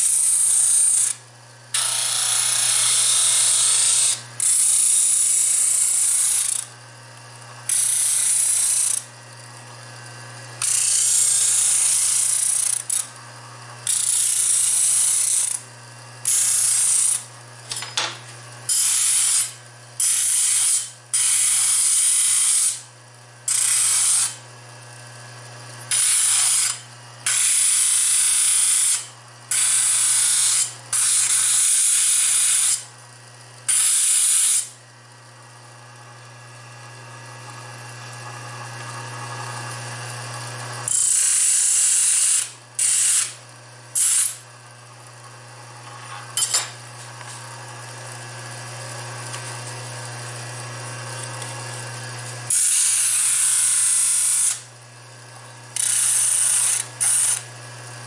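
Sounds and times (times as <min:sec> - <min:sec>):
electric motor humming: 0:00.0 - 0:22.8, 0:36.0 - 0:54.8, 0:55.6 - 0:58.0
knife blade grinding on sander: 0:00.0 - 0:24.4, 0:25.2 - 0:32.9, 0:33.5 - 0:34.8, 0:37.9 - 0:44.5, 0:45.2 - 0:58.0.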